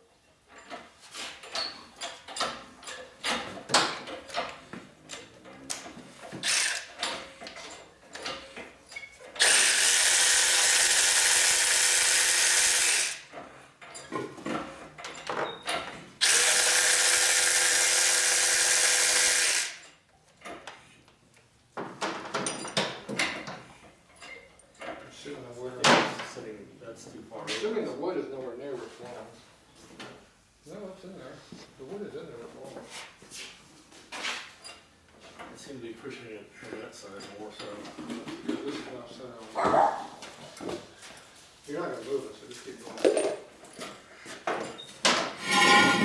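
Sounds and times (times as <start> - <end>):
tools clicking and clanking: 0.4 - 10.2, 12.9 - 16.3, 21.9 - 25.1, 42.8 - 46.0
power tool running: 6.4 - 6.9, 9.4 - 13.3, 16.2 - 19.8, 45.4 - 46.0.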